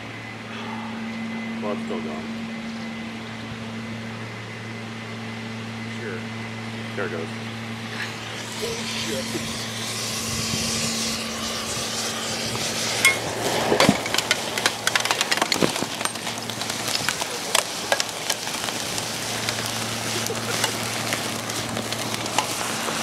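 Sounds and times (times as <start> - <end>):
hiss of burning: 6.7 - 23.0
porcelain cracking and popping: 13.1 - 23.0.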